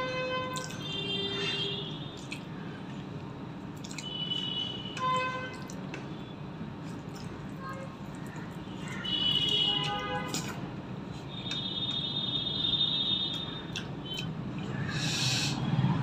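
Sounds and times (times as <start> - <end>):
chewing: 2.2 - 2.6, 3.8 - 4.1, 6.8 - 12.0, 13.3 - 14.9.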